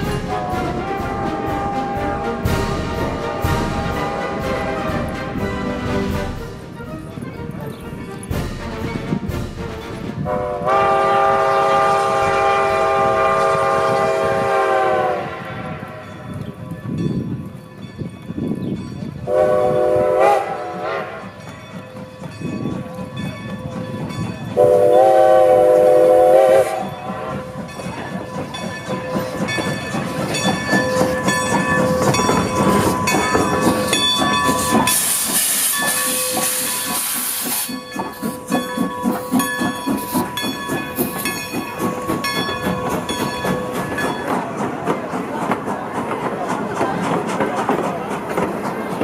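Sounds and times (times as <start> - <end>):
steam locomotive whistle: 0.0 - 5.9, 10.2 - 16.1, 19.3 - 21.4, 24.6 - 27.6, 31.8 - 41.2
locomotive exhaust beats: 0.0 - 49.0
loud steam hiss: 23.7 - 49.0.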